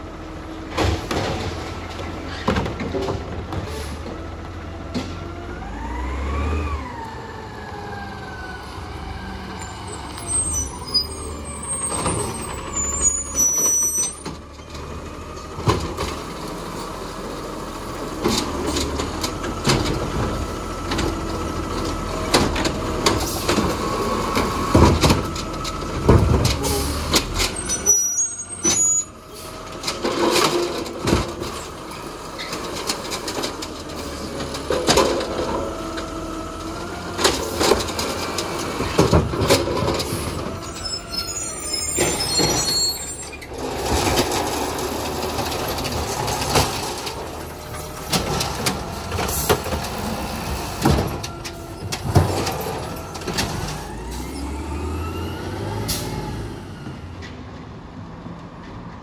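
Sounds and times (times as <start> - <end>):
diesel engine revving: 0.0 - 57.2
bins knocking and trash falling: 0.6 - 3.7, 22.2 - 27.6, 29.9 - 31.7, 37.2 - 40.6, 43.6 - 53.8.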